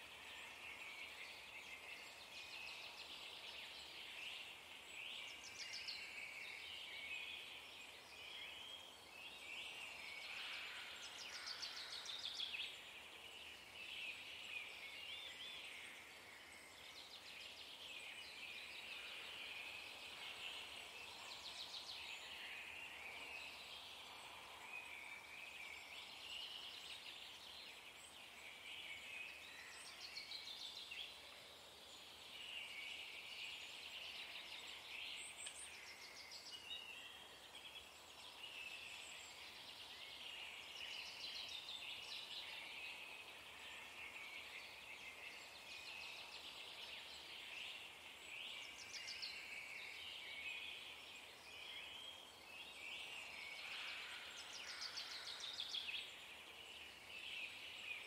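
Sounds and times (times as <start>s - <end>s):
faint birdsong: 0.0s - 58.0s.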